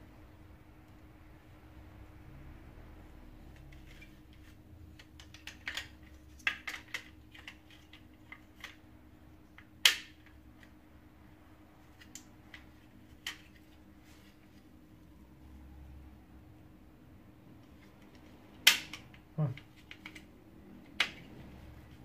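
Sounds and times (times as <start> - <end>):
plastic parts clicking: 3.5 - 8.8, 17.7 - 21.3.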